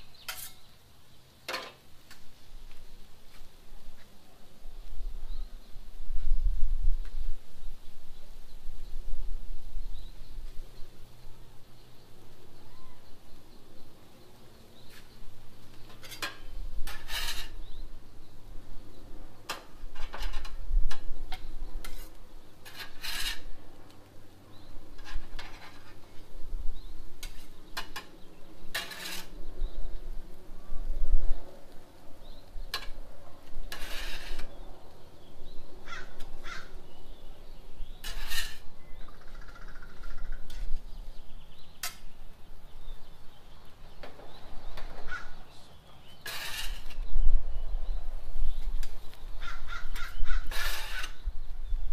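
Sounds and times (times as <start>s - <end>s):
metal spatula scraping griddle: 0.2s - 0.7s, 15.8s - 17.8s, 21.8s - 23.5s, 28.7s - 29.4s, 33.6s - 34.6s, 37.8s - 38.7s, 46.1s - 47.1s, 50.0s - 51.2s.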